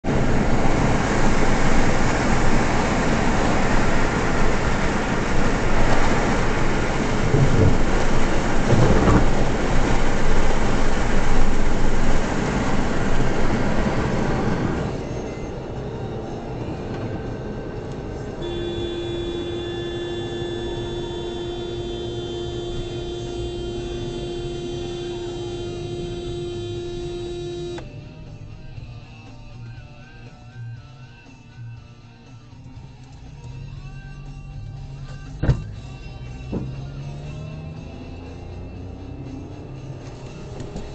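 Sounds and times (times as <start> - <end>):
car road and wind rumble: 0.0 - 30.3, 32.6 - 40.9
steady held tones: 18.4 - 27.8.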